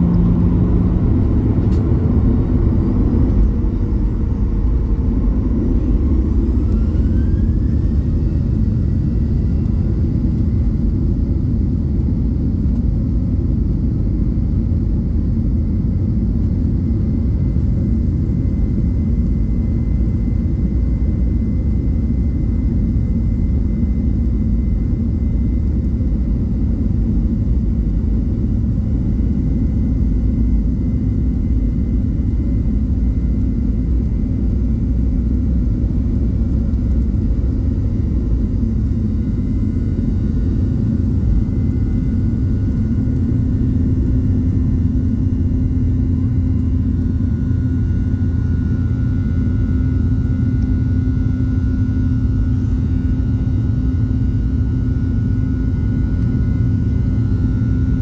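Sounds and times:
high whine: 0:00.0 - 0:11.2
jet engine low rumble: 0:00.0 - 0:58.0.

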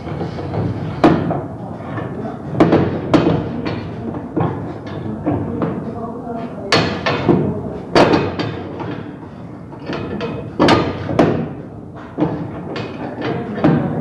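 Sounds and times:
sharp knocks on piping: 0:00.1 - 0:01.5, 0:02.5 - 0:04.6, 0:06.7 - 0:09.0, 0:09.9 - 0:11.6.

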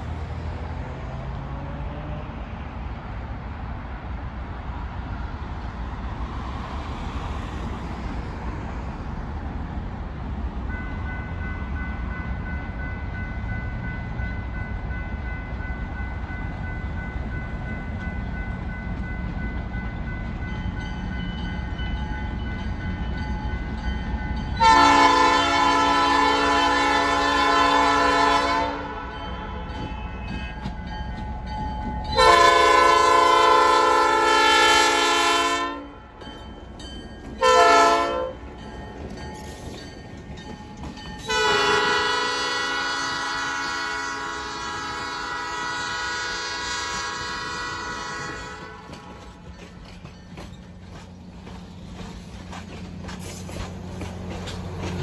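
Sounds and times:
diesel locomotive rumbling: 0:00.0 - 0:55.0
train air horn blasts: 0:24.6 - 0:30.7, 0:32.2 - 0:36.0, 0:37.4 - 0:38.4, 0:41.2 - 0:49.3.

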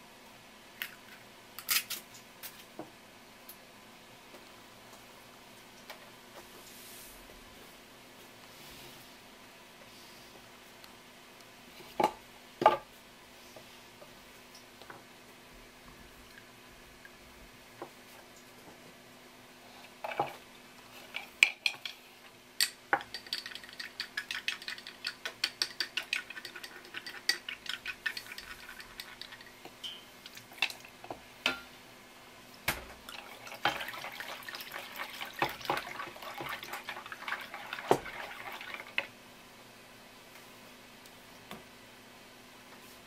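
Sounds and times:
eggs being cracked: 0:22.6 - 0:30.0
chopsticks beating eggs in bowl: 0:23.0 - 0:29.8, 0:33.2 - 0:39.1.

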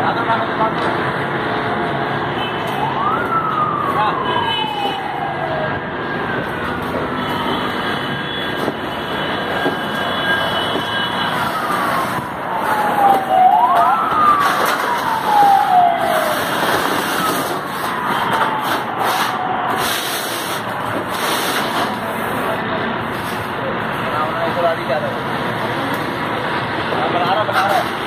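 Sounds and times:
steady background noise: 0:00.0 - 0:28.0
siren wailing: 0:02.6 - 0:20.1.

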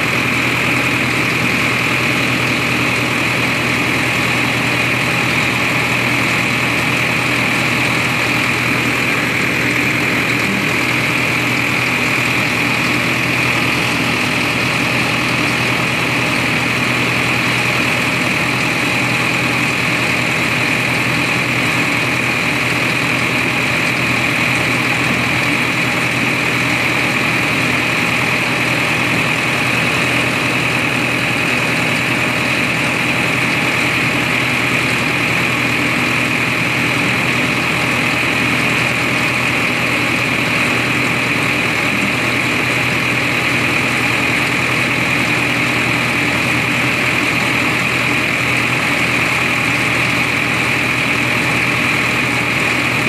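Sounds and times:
tractor engine droning: 0:00.0 - 0:53.0.

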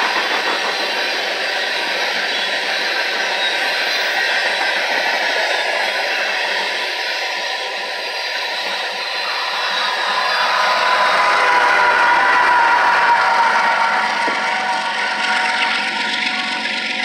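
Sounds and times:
train wheels rushing on rail: 0:00.0 - 0:17.0.

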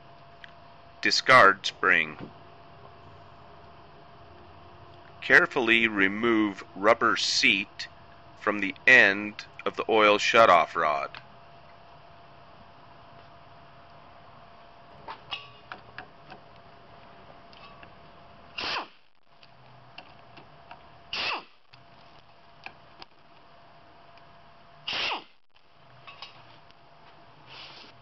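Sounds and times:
short hissing bursts: 0:18.6 - 0:19.0, 0:21.1 - 0:21.6, 0:24.9 - 0:25.4, 0:27.4 - 0:28.0.

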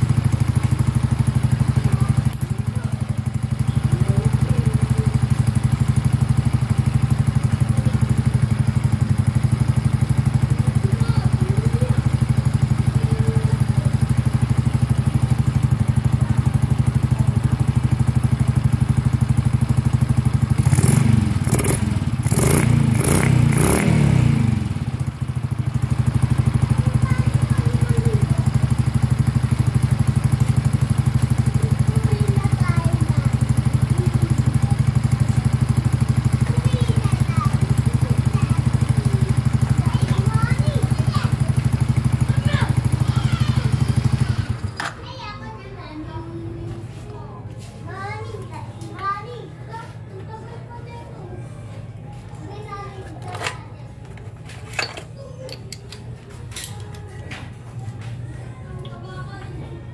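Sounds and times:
motorcycle engine idling and revving: 0:00.0 - 0:46.1.

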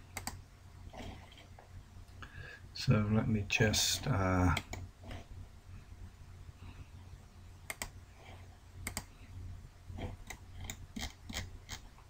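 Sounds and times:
low steady hum: 0:00.0 - 0:12.0
computer mouse clicking: 0:00.1 - 0:00.4, 0:04.6 - 0:05.2, 0:07.6 - 0:09.1, 0:10.0 - 0:11.9.

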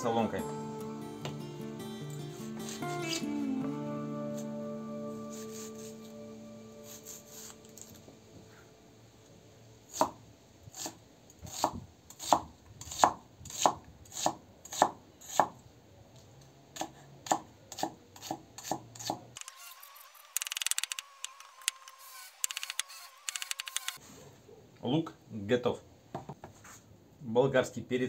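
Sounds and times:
rapid small clicks: 0:20.3 - 0:24.0.

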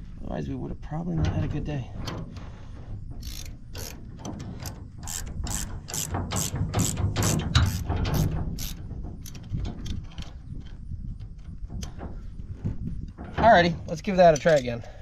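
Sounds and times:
ratchet wrench clicking: 0:03.2 - 0:04.0, 0:04.6 - 0:10.0.

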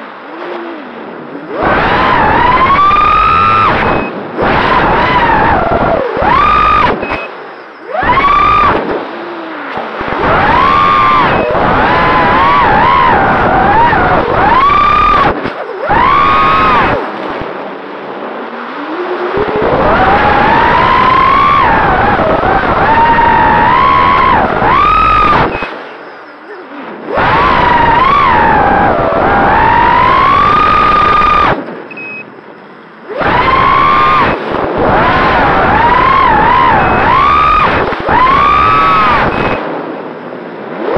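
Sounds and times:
drone motors whining: 0:00.0 - 0:40.9
quadcopter motors whining: 0:00.3 - 0:17.2.

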